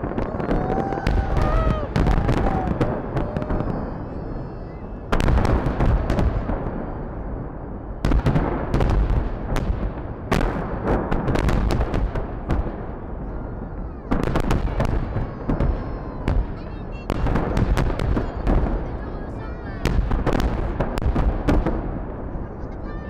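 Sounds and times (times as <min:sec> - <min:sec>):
fireworks bangs with rumble: 0:00.0 - 0:23.0.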